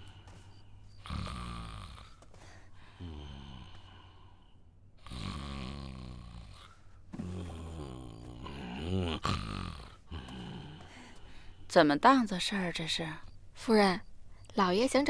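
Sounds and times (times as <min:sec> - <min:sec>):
person snoring: 0:01.0 - 0:11.2.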